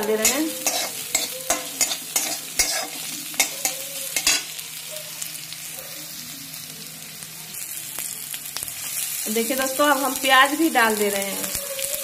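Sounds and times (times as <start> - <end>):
sizzling in hot oil: 0.0 - 12.0
metal spatula scraping a pan: 0.1 - 4.5.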